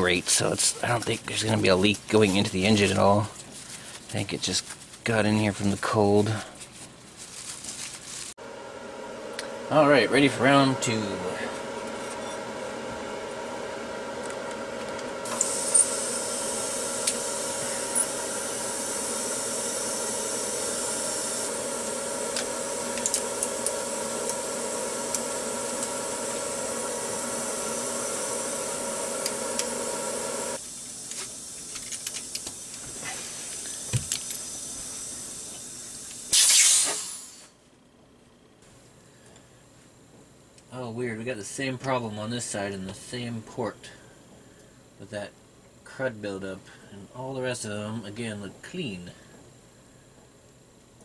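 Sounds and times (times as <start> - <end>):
steady hum: 8.4 - 51.0
compressed air hissing: 15.2 - 37.5
short loud blast of air: 36.3 - 37.5.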